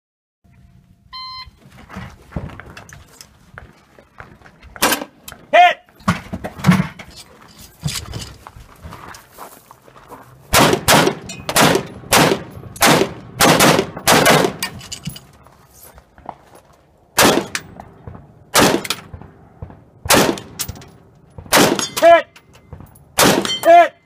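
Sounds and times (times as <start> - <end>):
gunshots: 10.5 - 14.7, 17.2 - 20.8, 21.4 - 22.2, 22.8 - 23.8.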